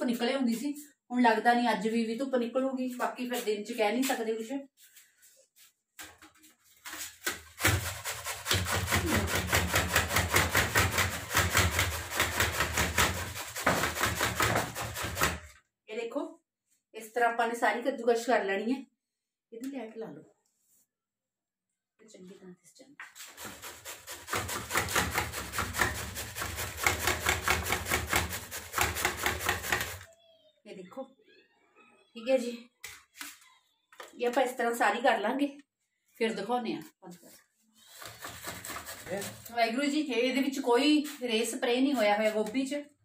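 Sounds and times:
cauliflower grated on metal grater: 7.0s - 15.4s, 23.2s - 30.1s, 37.9s - 39.6s.

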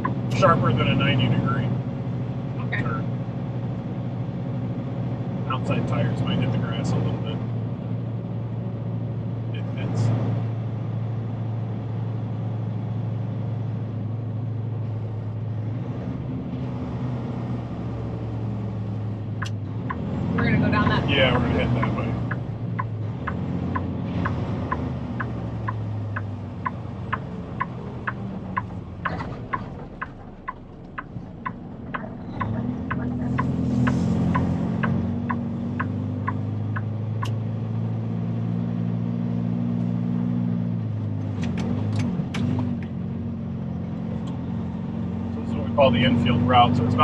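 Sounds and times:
turn signal ticking: 0.0s - 0.4s, 18.3s - 37.7s
diesel truck engine: 0.0s - 47.0s
sharp clicks: 19.4s - 20.1s, 21.8s - 37.4s.

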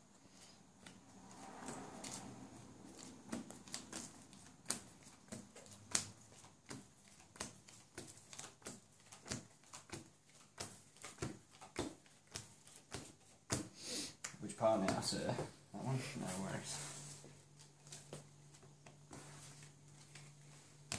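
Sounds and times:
playing cards clicking on table: 3.0s - 15.0s.

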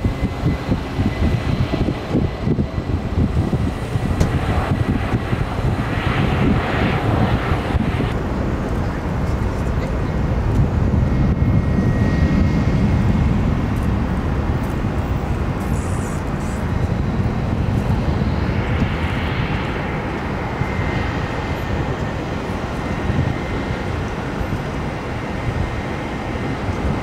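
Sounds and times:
faint high engine whine: 0.0s - 27.0s
jet engines rumbling: 0.0s - 27.0s.

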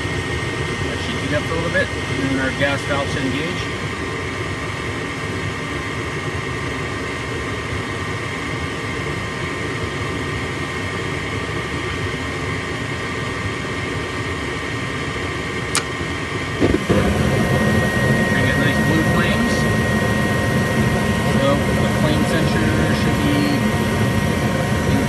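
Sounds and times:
furnace motor running: 15.2s - 25.0s
burners lighting: 16.6s - 23.6s.

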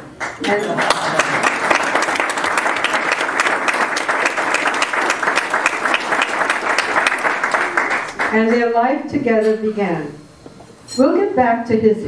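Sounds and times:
audience applauding: 0.2s - 8.5s.

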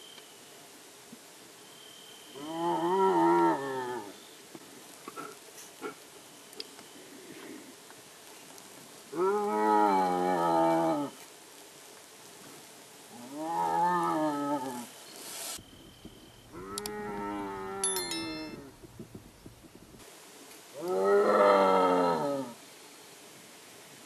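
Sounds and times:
hyena calling: 15.8s - 17.9s.

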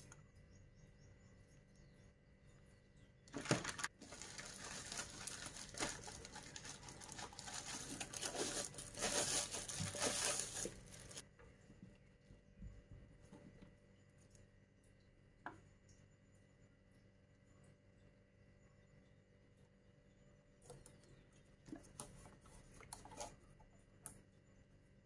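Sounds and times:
plastic bag crinkling: 3.3s - 11.2s.

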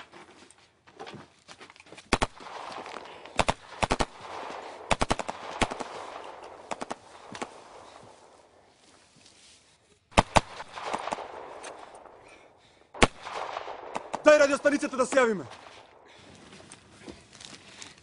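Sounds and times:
gunfire in rapid bursts: 2.1s - 8.0s, 10.1s - 12.2s, 12.9s - 16.0s.

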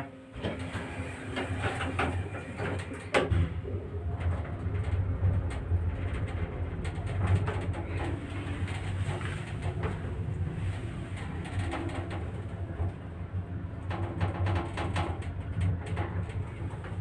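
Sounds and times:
elevator humming: 0.0s - 17.0s.

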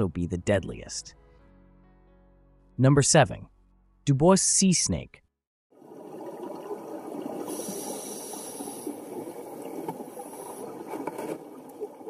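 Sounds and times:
underwater crackling and bubbling: 5.8s - 12.0s.

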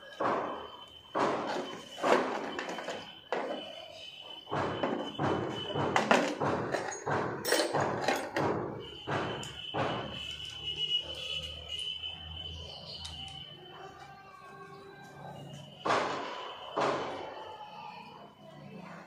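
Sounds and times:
dull knocks and thuds: 4.5s - 10.2s.

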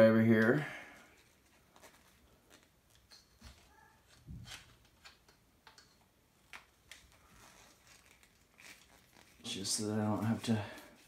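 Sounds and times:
plastic parts clicking and tapping: 2.5s - 7.2s.

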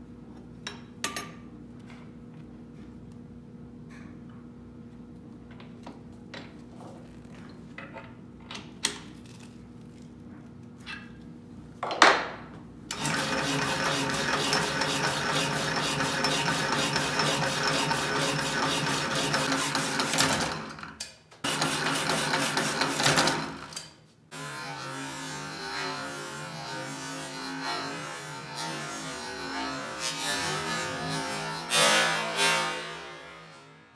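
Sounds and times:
power hacksaw cutting metal: 12.9s - 20.8s, 21.4s - 33.8s.

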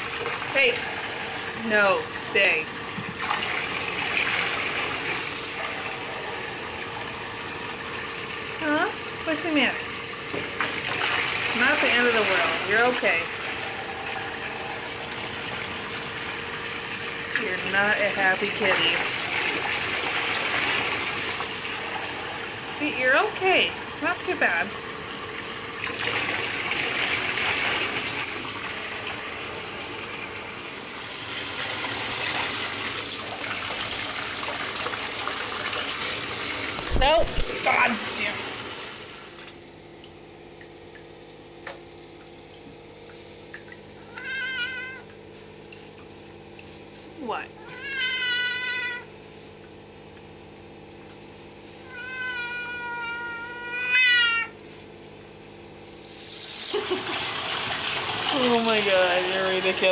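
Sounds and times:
water running into bathtub: 0.0s - 59.9s
cat meowing in distress: 44.1s - 45.1s, 47.6s - 49.1s, 51.8s - 54.6s.

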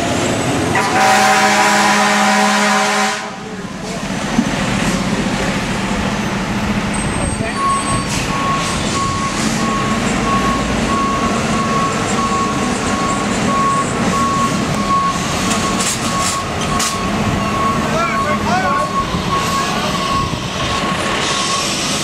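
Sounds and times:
truck engine running: 0.0s - 22.0s
reversing alarm beeping: 6.9s - 22.0s.

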